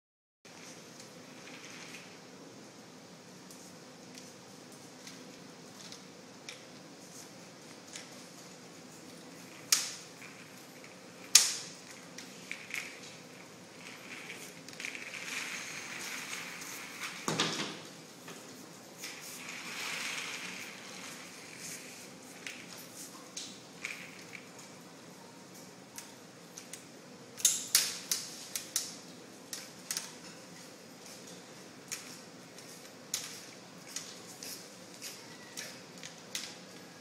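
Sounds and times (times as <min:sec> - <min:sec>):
wire frame rattling and scraping: 0:07.9 - 0:24.6.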